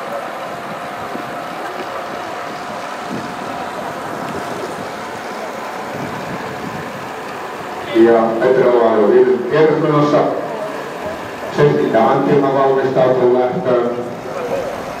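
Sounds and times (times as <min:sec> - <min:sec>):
wind noise on microphone: 0:00.0 - 0:08.7.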